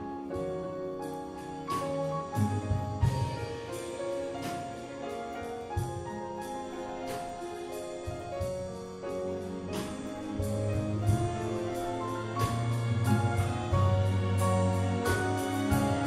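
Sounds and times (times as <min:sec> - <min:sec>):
piano chords: 0:00.0 - 0:16.0
string orchestra: 0:00.0 - 0:16.0.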